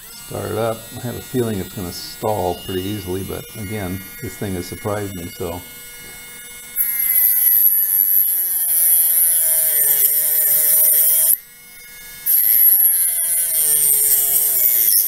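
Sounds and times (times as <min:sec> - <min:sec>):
rotary tool motor whine: 0:00.0 - 0:15.0.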